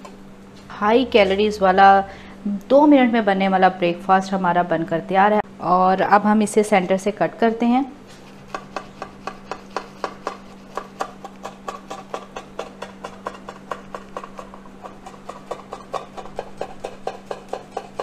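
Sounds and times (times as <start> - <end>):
knife sawing through crunchy bread: 8.1 - 18.0.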